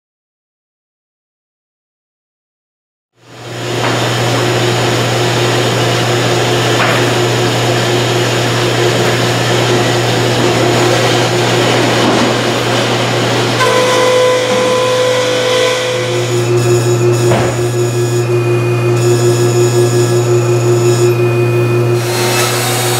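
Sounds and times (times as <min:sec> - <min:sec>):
sawmill machinery humming: 0:03.2 - 0:22.9
high steady tone: 0:13.6 - 0:22.0.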